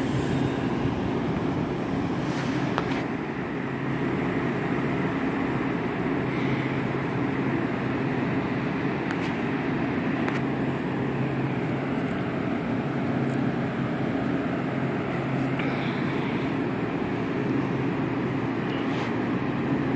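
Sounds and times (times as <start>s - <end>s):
electric train humming: 0.0s - 19.9s.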